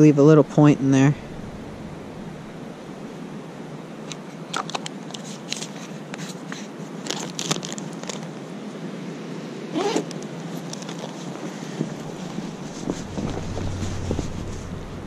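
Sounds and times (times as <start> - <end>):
plastic tackle clicks and rustles: 4.1 - 8.4, 9.8 - 13.8
steady hiss: 11.4 - 15.0.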